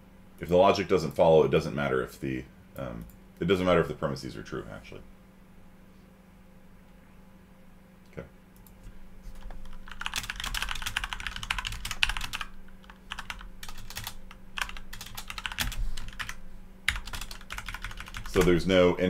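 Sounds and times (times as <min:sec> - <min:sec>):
typing on computer keyboard: 0:09.4 - 0:18.5.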